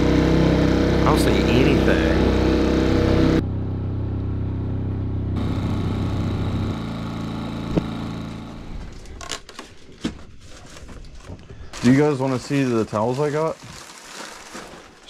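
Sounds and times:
outboard motor running: 0.0s - 9.4s.

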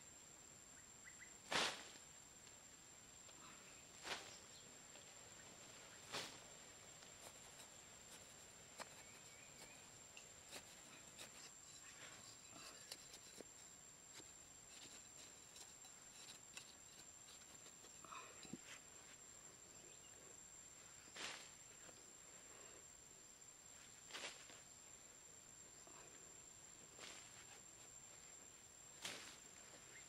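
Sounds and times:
knife scraping sandy soil: 5.9s - 18.8s.

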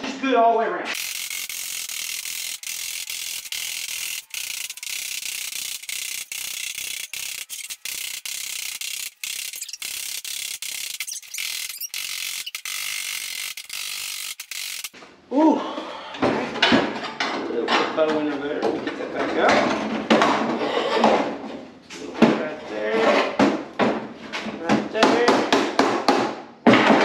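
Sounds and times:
ratchet-like clatter of sheet metal: 1.0s - 15.0s.

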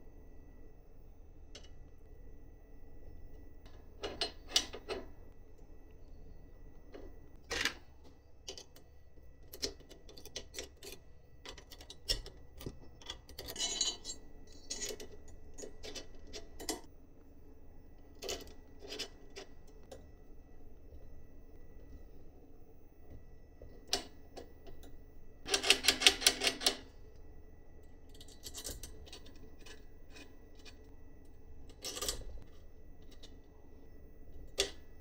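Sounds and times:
tools and parts clicking: 8.4s - 16.9s, 28.1s - 30.9s, 31.7s - 33.4s, 34.4s - 34.9s.

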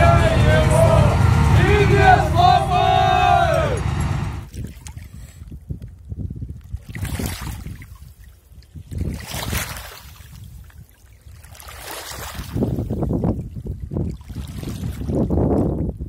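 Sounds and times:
wind rumbling on microphone: 5.4s - 10.6s, 12.4s - 16.0s.

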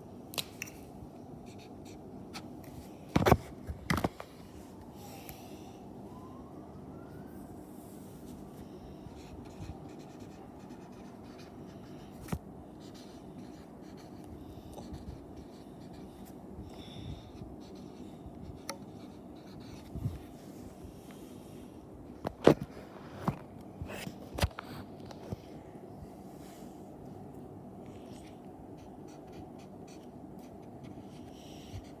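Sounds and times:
marker pen scratching on paper: 9.2s - 12.2s, 28.2s - 32.0s.

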